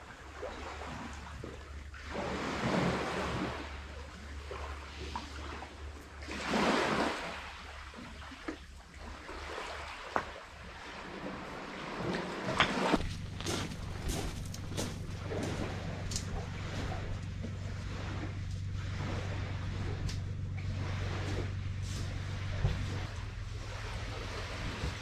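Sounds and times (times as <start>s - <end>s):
sea waves washing onto gravel: 10.6s - 17.0s.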